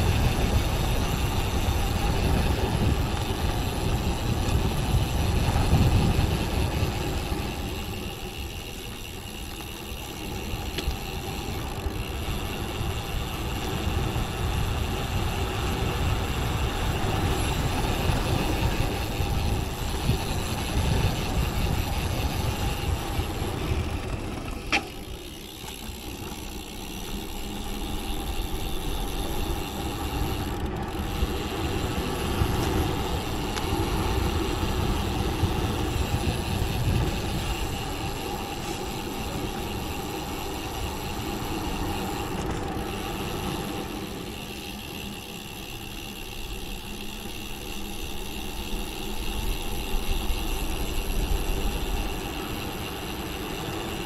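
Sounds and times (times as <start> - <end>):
wind on microphone: 0.0 - 8.2, 31.0 - 39.9
bicycle tyre noise: 0.0 - 54.0.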